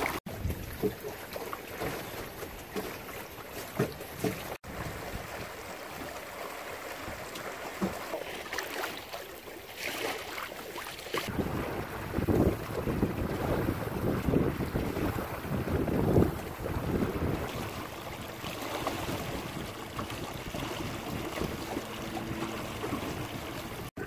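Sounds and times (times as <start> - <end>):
water splashing along hull: 0.0 - 24.0
wind buffeting microphone: 11.3 - 24.0.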